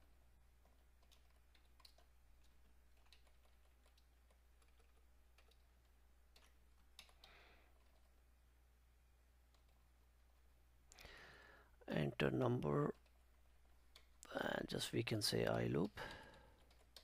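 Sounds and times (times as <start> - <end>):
low steady hum: 0.0 - 17.0
faint keyboard keystrokes: 0.6 - 8.1, 15.7 - 17.0.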